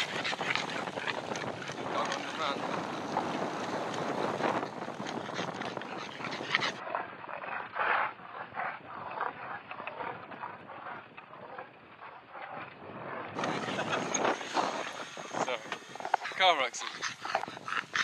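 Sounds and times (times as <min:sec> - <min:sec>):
dog panting: 0:00.0 - 0:02.2, 0:05.0 - 0:06.8, 0:13.4 - 0:18.0.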